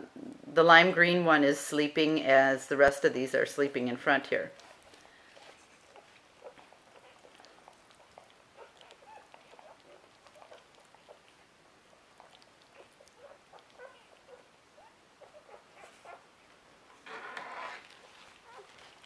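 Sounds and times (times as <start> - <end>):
puppies squeaking and grunting: 4.5 - 19.0.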